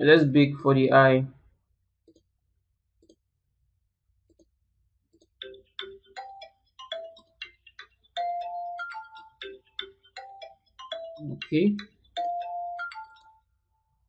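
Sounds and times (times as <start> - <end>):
chiming note melody: 8.2 - 13.4.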